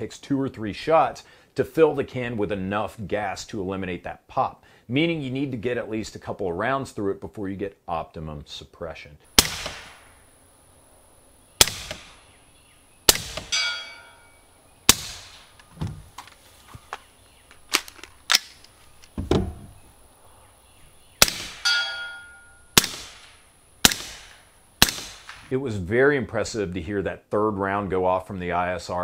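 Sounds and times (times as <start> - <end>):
suppressed rifle shots: 9.3 - 10.3, 11.6 - 12.4, 13.1 - 13.9, 14.9 - 15.6, 21.2 - 25.5
brief ringing: 21.7 - 22.8.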